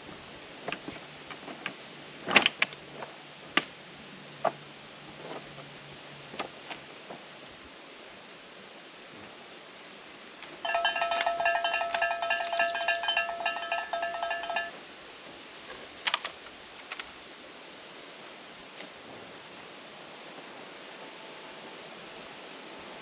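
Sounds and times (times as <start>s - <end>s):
rapid jingling bells: 10.6s - 14.8s.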